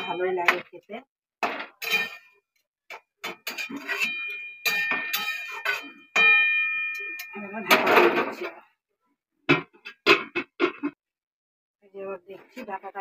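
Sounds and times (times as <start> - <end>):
metal spoon scraping a pan: 1.7 - 8.4
pan ringing: 3.5 - 7.8.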